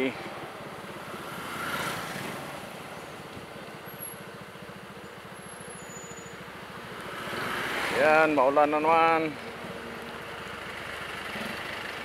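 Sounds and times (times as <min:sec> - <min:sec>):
road noise: 0:00.0 - 0:12.0
vehicle passing: 0:01.1 - 0:02.7, 0:07.0 - 0:08.4.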